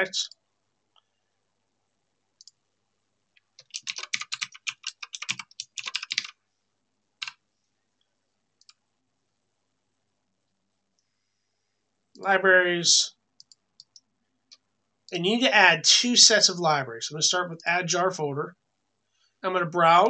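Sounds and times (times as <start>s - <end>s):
computer keyboard typing: 3.4s - 6.4s, 7.2s - 7.4s.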